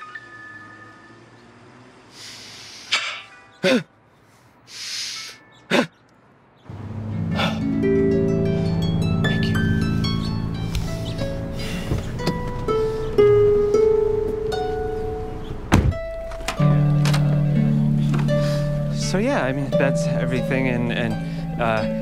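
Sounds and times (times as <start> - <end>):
man breathing deeply: 2.1 - 5.8, 7.2 - 7.8, 8.4 - 12.1
plucked-string music: 6.7 - 22.0.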